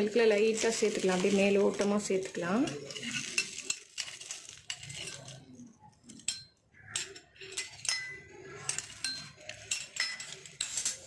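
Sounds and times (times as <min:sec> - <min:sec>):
ladle clinking against glass: 0:06.0 - 0:11.0.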